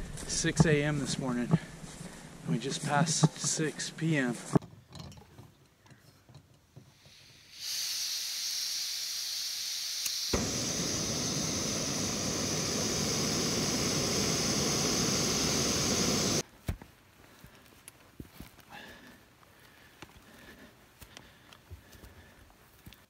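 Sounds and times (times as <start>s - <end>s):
gas burner rushing hiss: 6.9s - 16.4s
gas hissing from valve: 6.9s - 16.4s.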